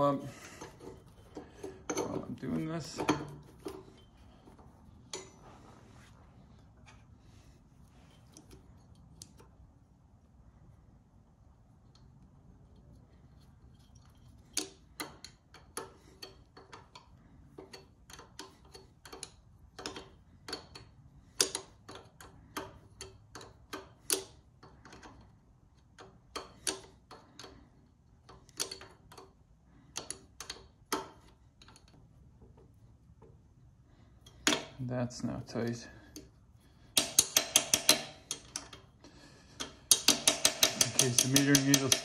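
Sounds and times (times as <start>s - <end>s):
wrench metallic clicks: 14.6s - 27.6s, 36.9s - 38.9s, 39.6s - 42.0s.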